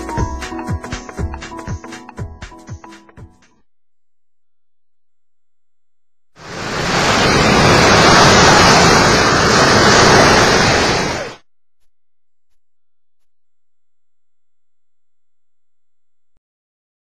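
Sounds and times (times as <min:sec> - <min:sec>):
ocean surf breaking: 0:06.4 - 0:11.4.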